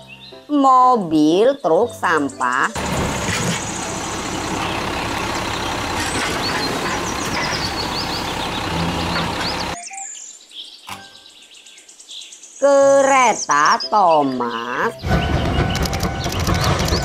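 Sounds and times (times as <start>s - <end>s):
garbage truck engine: 2.8s - 9.8s, 15.0s - 17.0s
hydraulic lifting arm: 2.8s - 9.8s.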